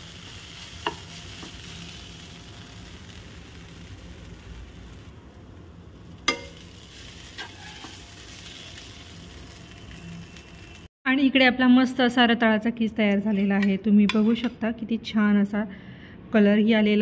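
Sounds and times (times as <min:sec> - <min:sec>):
spatula tapping pan: 0:00.8 - 0:01.6, 0:06.3 - 0:06.6
spatula scraping pan: 0:06.3 - 0:09.0.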